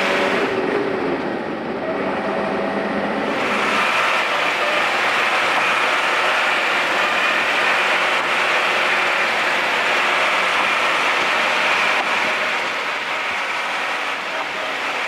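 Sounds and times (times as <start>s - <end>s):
truck diesel engine running: 0.0s - 15.0s
tyre noise on asphalt: 3.3s - 15.0s.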